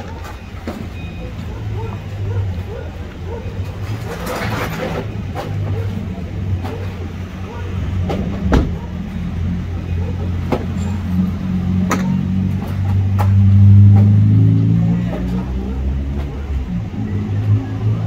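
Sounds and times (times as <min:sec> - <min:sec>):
vehicle passing: 0:01.0 - 0:18.0
brick rubble clacking: 0:03.0 - 0:07.1.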